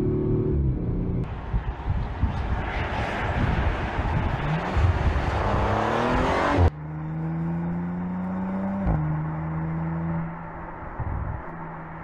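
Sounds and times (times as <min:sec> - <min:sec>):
car engine accelerating: 0:02.6 - 0:11.1.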